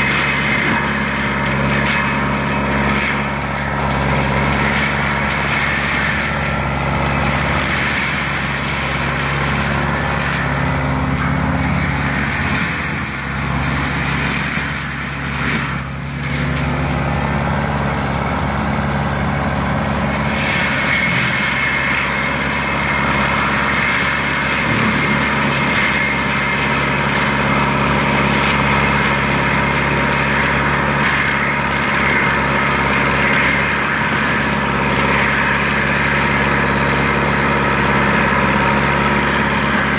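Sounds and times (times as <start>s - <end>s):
diesel engine running under load: 0.0s - 39.9s
mulcher shredding brush: 0.0s - 39.9s.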